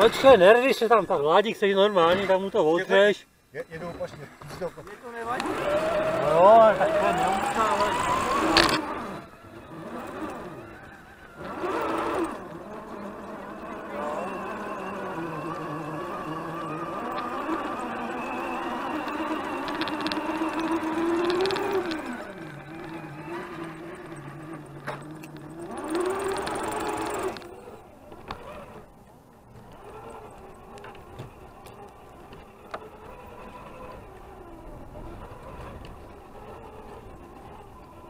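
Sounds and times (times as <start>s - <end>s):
toy truck motor whining: 0.0s - 38.0s
sharp clicks: 18.9s - 28.6s.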